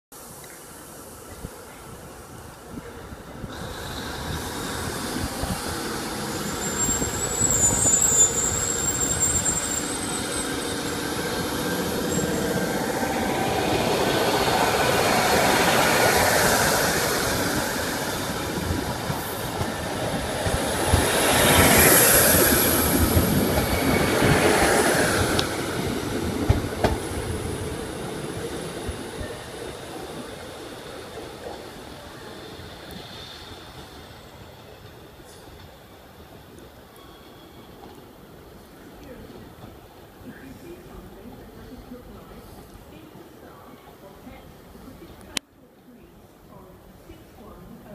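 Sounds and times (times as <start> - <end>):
diesel train engines working: 0.3 - 43.6
wheel squeal: 6.0 - 12.8.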